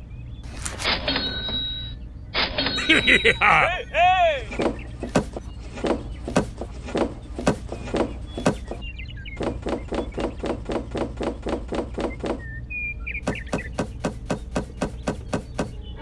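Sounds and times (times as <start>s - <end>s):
plastic toys knocking on wooden crate: 13.3s - 15.8s.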